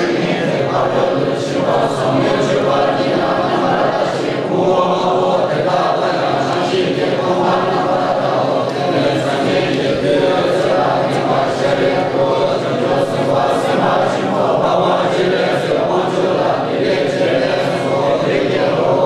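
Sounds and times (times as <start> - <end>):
group chanting in unison: 0.0 - 19.0.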